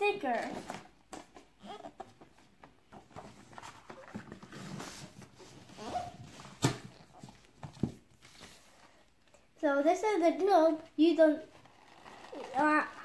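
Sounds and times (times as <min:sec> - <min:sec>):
paper pages rustling: 0:02.0 - 0:09.1, 0:11.5 - 0:13.0.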